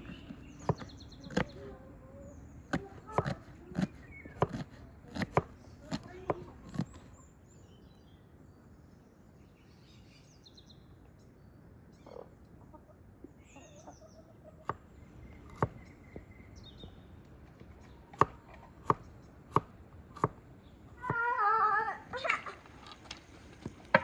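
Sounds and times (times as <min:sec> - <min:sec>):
knife chopping on wooden board: 0:00.0 - 0:01.6, 0:02.7 - 0:07.0, 0:15.5 - 0:15.8, 0:18.1 - 0:20.4
birds chirping: 0:00.0 - 0:24.0
chickens clucking: 0:12.1 - 0:15.9.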